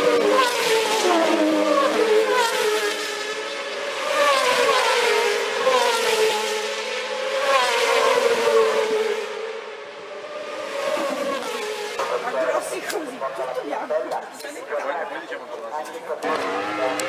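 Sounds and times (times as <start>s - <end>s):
racing motorcycles passing: 0.0s - 15.3s, 16.2s - 17.0s.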